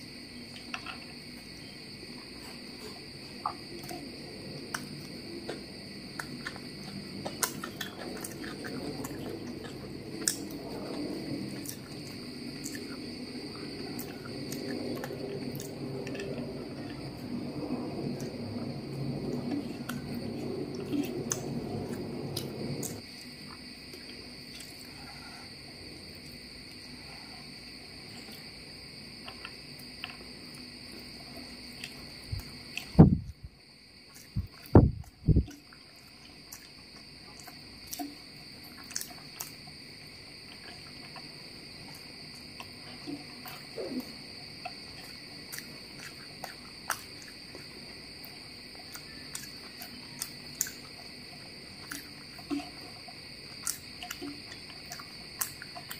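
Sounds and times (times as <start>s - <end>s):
high-pitched background whine: 0.0s - 55.9s
chewing clicks: 2.8s - 17.2s, 19.2s - 24.9s, 35.4s - 55.9s.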